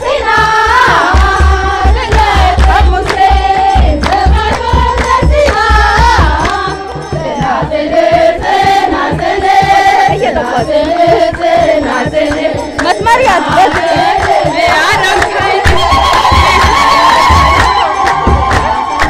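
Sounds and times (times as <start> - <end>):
women singing a hymn: 0.0 - 18.8
deep drum beat: 0.0 - 19.0
hand clapping: 1.1 - 6.7, 12.3 - 19.0.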